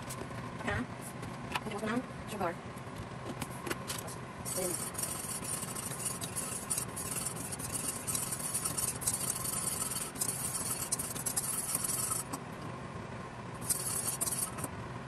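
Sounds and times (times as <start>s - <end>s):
whisk stirring flour in pot: 4.5s - 12.4s, 13.6s - 14.7s.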